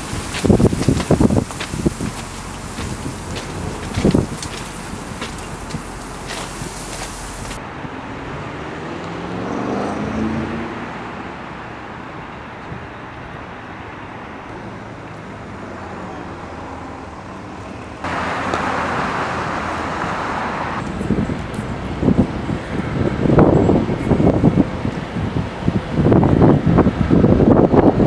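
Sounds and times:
vehicle passing: 0.0s - 11.8s, 14.5s - 24.6s
steady traffic hum: 0.0s - 28.0s.

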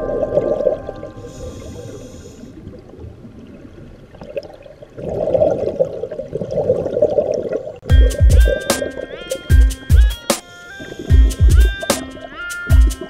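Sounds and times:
gush of exhaled bubbles: 0.0s - 7.8s
hissing regulator inhalation: 1.2s - 2.6s.

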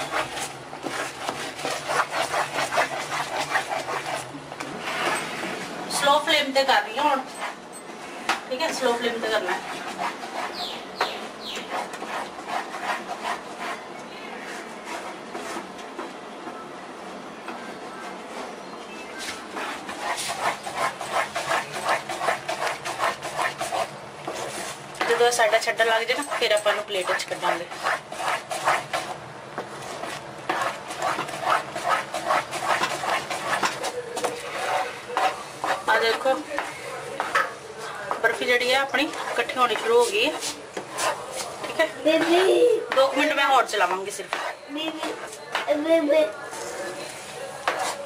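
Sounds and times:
wooden spatula scraping metal pan: 0.0s - 6.2s, 19.2s - 45.8s.

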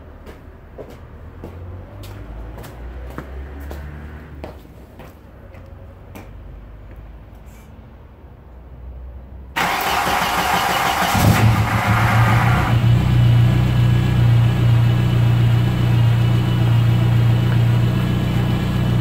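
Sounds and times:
starter motor cranking: 9.6s - 12.3s
loud car engine idling: 9.6s - 19.0s.

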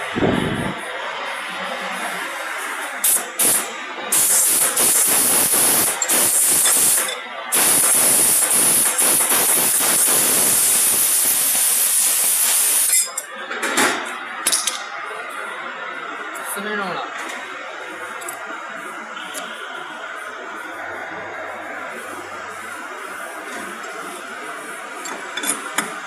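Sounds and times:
compressed air hissing: 3.0s - 12.9s.

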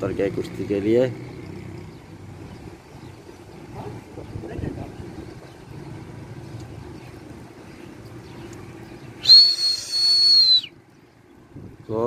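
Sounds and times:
loud shrill whistle: 9.2s - 10.8s.

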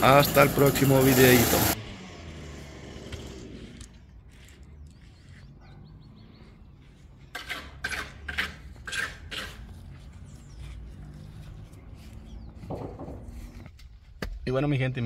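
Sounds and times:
short scraping noises: 7.3s - 10.9s.

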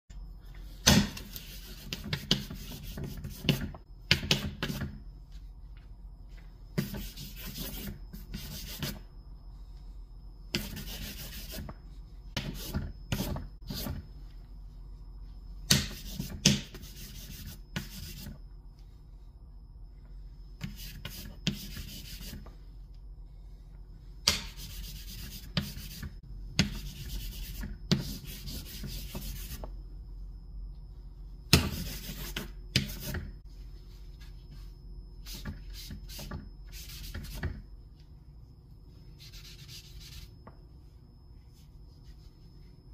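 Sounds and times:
charcoal scribbling on paper: 10.6s - 11.6s, 15.9s - 18.3s, 39.2s - 40.3s.

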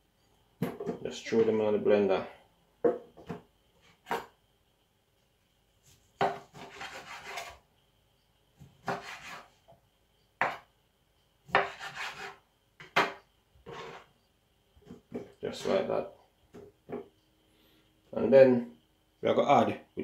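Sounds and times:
knife cutting fruit on wooden board: 6.2s - 7.6s, 8.6s - 9.5s, 11.5s - 14.1s.

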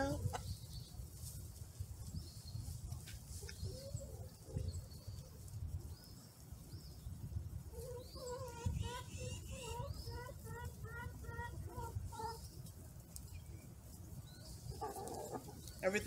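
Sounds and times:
faint high bird chirps: 7.8s - 11.1s.

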